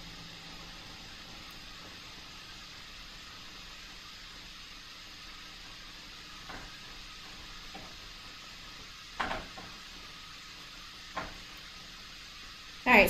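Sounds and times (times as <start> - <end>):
room noise hiss: 0.0 - 13.0.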